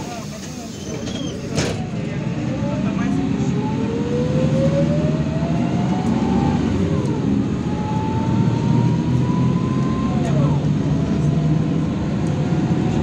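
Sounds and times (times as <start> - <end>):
bus drivetrain whine: 0.0 - 13.0
low engine hum: 1.8 - 13.0.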